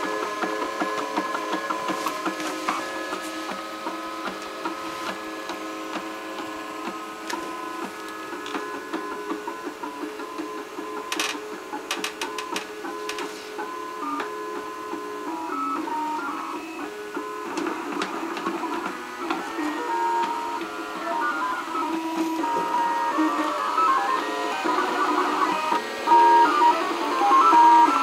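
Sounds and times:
stepper motors whining: 18.3s - 28.0s.

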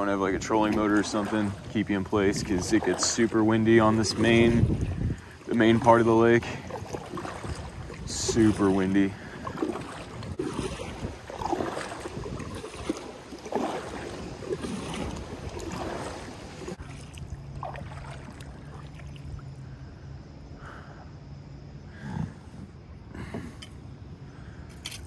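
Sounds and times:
wind buffeting microphone: 0.0s - 18.5s
paddle strokes swishing water: 0.0s - 19.8s
water lapping against hull: 0.0s - 25.0s.

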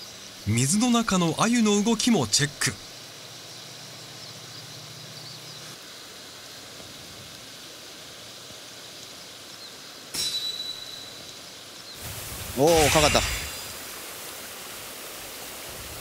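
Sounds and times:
faint high chirps: 9.6s - 12.0s
river water rushing: 12.0s - 16.0s.

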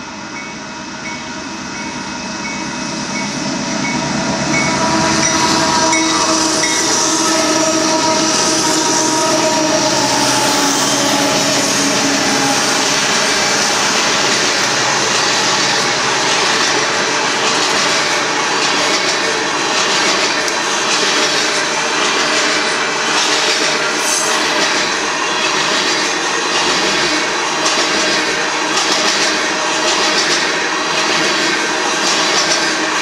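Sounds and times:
train wheels on rail: 0.0s - 33.0s.

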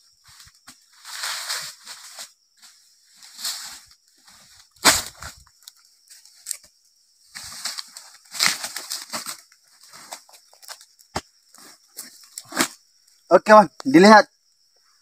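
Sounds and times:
dry fronds rustling: 7.3s - 12.8s.

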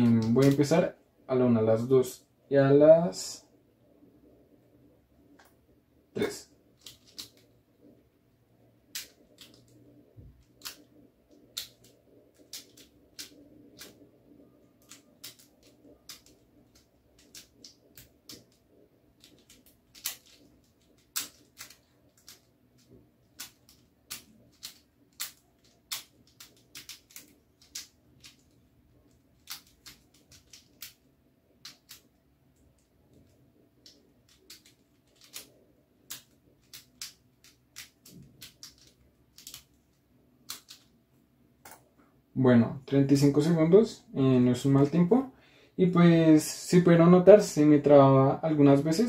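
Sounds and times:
speed cube clacking: 6.6s - 8.0s, 8.6s - 41.0s.

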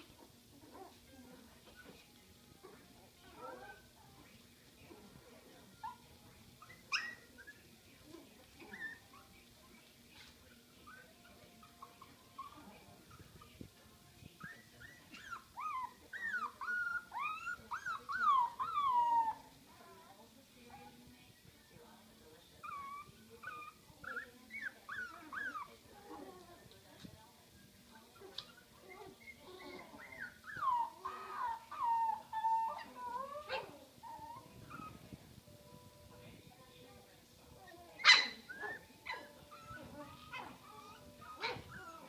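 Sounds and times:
puppy whining and yelping: 6.6s - 7.6s, 14.4s - 19.5s, 22.6s - 26.4s, 28.2s - 35.0s, 37.8s - 42.0s
puppy sharp cry: 38.0s - 39.3s.

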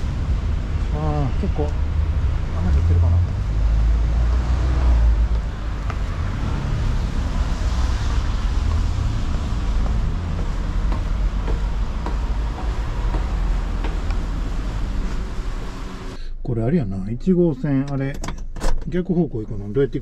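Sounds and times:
road traffic rumble: 0.0s - 16.2s
footsteps on concrete stairs: 3.2s - 15.8s.

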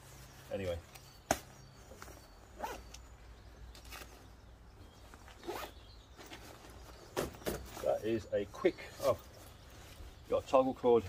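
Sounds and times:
jacket fabric rasping: 2.5s - 3.0s, 5.4s - 5.8s.

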